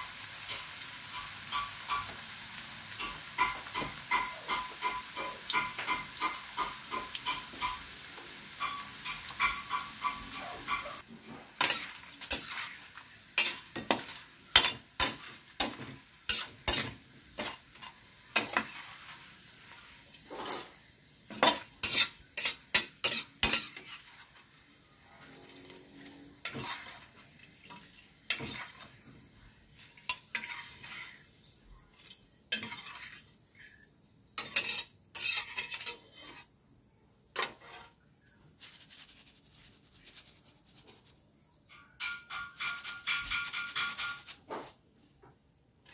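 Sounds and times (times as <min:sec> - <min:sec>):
potatoes sizzling in oil: 0:00.0 - 0:44.8
metal spatula clinking on wok: 0:08.6 - 0:11.0, 0:41.7 - 0:44.3.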